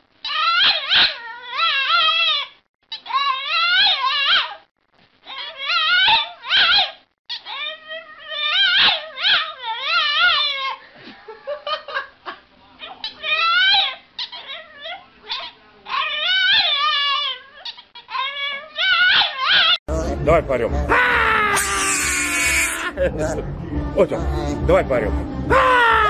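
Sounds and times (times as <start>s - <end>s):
dog howling: 0.3s - 2.5s, 3.1s - 4.6s, 20.9s - 22.9s, 25.5s - 26.0s.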